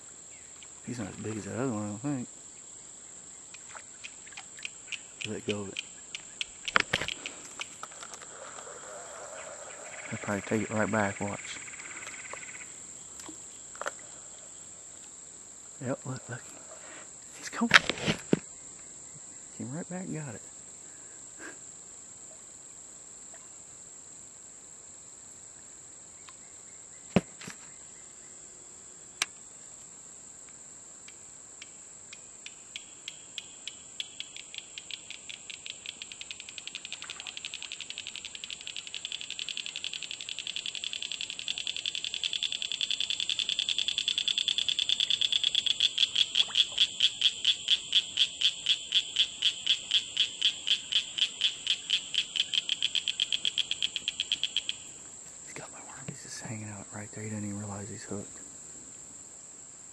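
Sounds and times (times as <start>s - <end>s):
high-pitched insect drone: 0.0s - 14.9s, 31.4s - 58.2s
sharp clicks: 3.5s - 8.7s, 31.0s - 46.8s
rhythmic clicking animal call: 3.5s - 12.7s, 31.6s - 55.0s.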